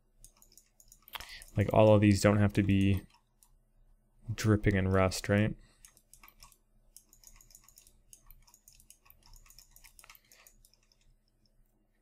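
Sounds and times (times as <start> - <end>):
computer mouse and keyboard clicking: 0.2 - 3.6, 5.8 - 11.6.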